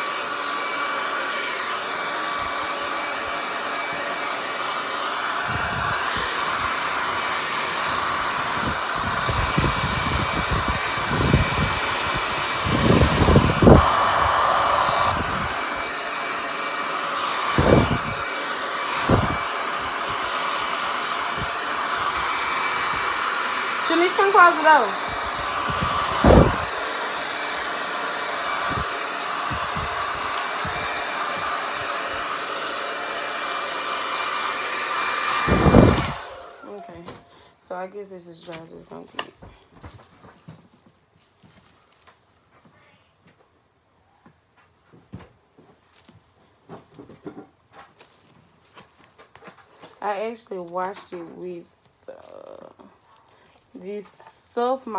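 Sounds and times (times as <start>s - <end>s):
hair dryer running: 0.0s - 39.4s, 53.6s - 54.9s
low gusts of airflow: 1.4s - 36.6s.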